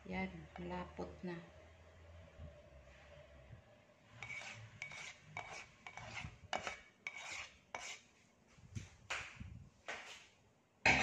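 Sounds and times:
utensil scraping a pan: 0:04.0 - 0:08.1.

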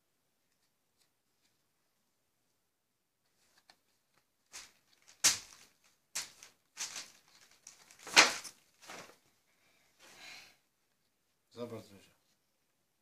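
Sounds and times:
paper booklet pages rustling: 0:03.2 - 0:09.4.

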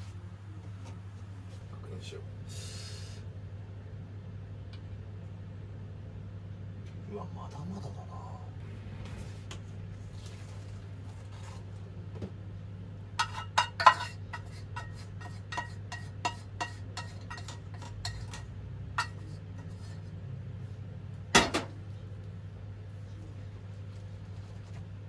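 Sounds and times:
spatula clinking against metal pot: 0:13.2 - 0:19.9.

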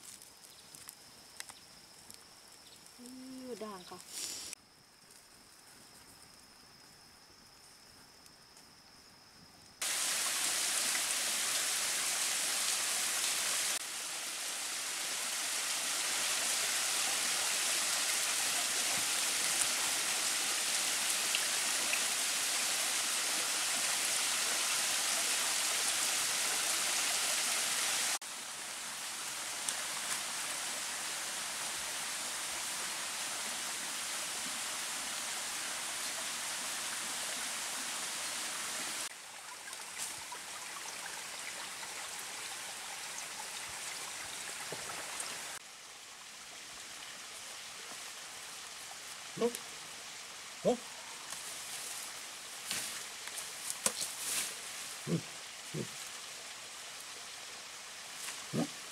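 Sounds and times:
high insect trill: 0:00.0 - 0:09.8
rushing forest stream: 0:09.8 - 0:58.9.

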